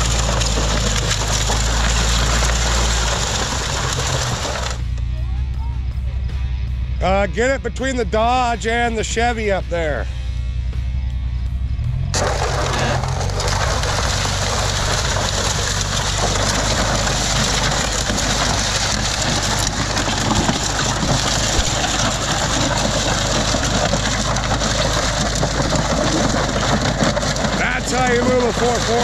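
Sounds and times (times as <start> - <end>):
metal scraping over gravel: 0.0 - 5.0, 12.0 - 29.0
vehicle engine running: 0.0 - 29.0.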